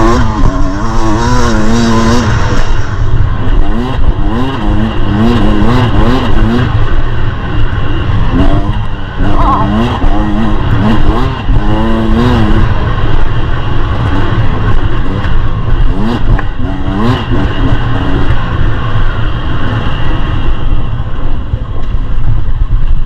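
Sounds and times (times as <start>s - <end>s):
dirt bike engine revving: 0.0s - 20.7s.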